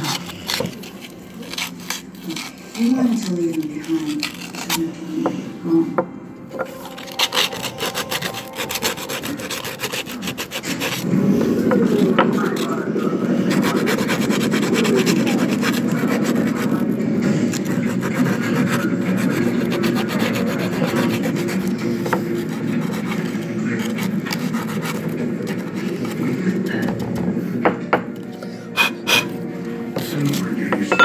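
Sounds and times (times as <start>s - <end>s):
abrasive scrubbing metal: 6.6s - 26.2s.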